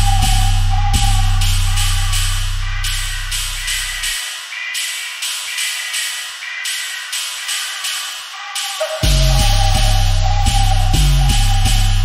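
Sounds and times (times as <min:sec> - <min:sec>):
heavy bass line: 0:00.0 - 0:04.2, 0:09.0 - 0:12.0
hissy percussion hits: 0:00.0 - 0:12.0.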